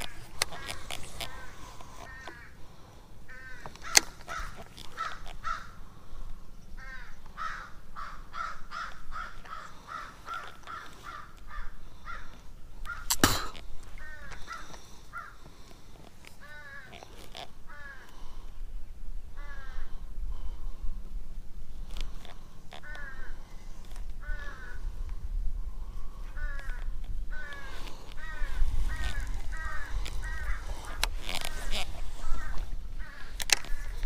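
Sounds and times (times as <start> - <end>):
birds calling harshly: 0.0 - 21.0, 21.7 - 34.0
sharp click: 13.1 - 13.6.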